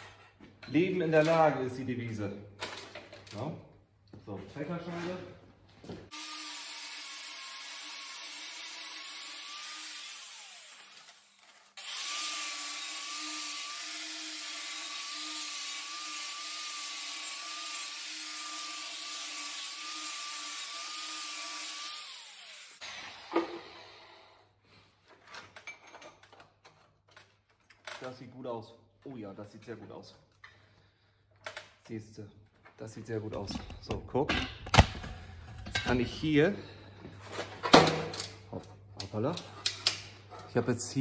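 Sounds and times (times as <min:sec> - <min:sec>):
angle grinder cutting metal pipe: 0:06.1 - 0:23.8.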